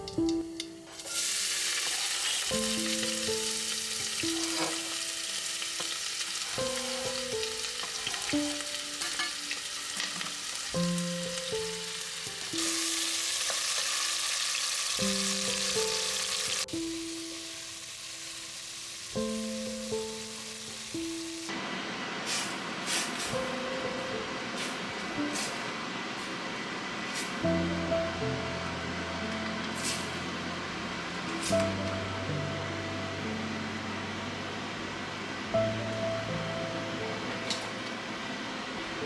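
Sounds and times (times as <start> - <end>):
soft background music: 0.0 - 13.8, 15.0 - 21.5, 23.2 - 25.8, 27.2 - 39.0
food sizzling on stove: 0.0 - 23.8, 29.7 - 30.6.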